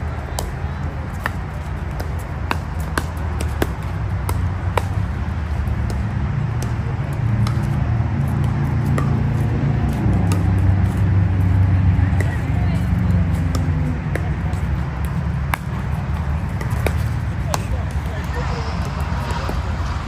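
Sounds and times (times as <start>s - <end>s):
paddles hitting plastic ball: 0.2s - 11.5s, 12.1s - 19.6s.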